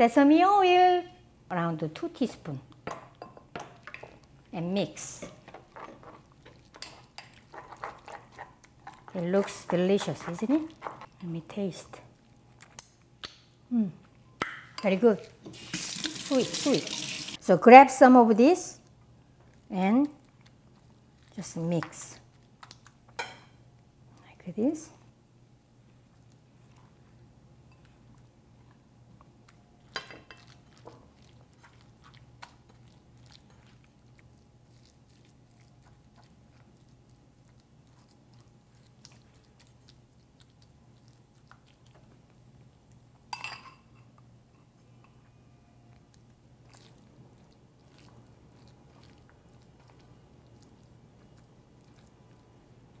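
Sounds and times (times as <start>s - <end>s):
hands squelching raw meat: 46.6s - 53.0s.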